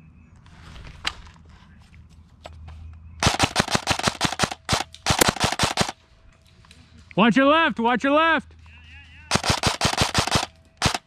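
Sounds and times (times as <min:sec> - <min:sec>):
airsoft gun rapid firing: 0:03.2 - 0:06.0, 0:09.3 - 0:11.0.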